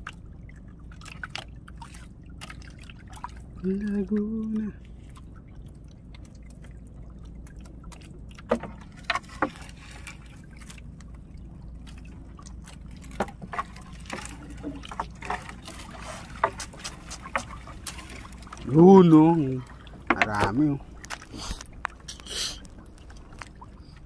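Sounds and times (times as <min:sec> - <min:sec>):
low rumble: 0:00.0 - 0:24.0
water trickling off fishing net: 0:00.0 - 0:24.0
sharp clicks and knocks: 0:20.1 - 0:21.2.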